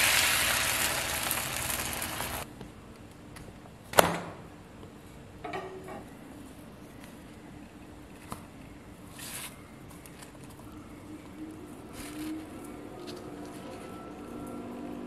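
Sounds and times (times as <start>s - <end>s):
faint steady hum: 4.5s - 15.0s.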